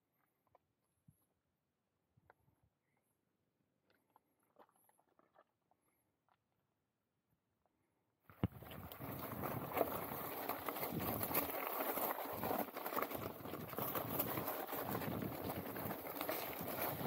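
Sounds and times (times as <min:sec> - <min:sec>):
tyres crunching on stones: 0:08.4 - 0:17.0
bike rattling: 0:08.5 - 0:17.0.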